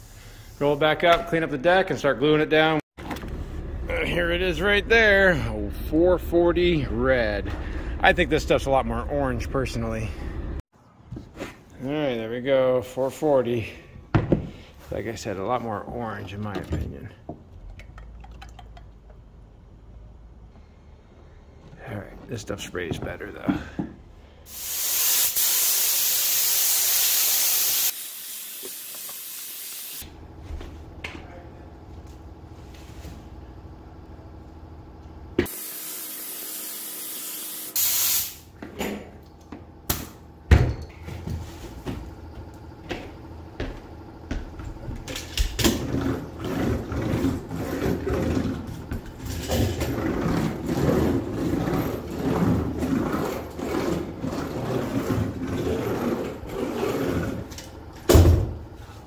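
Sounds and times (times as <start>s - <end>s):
spray gun hissing: 24.5s - 30.0s, 35.5s - 38.4s.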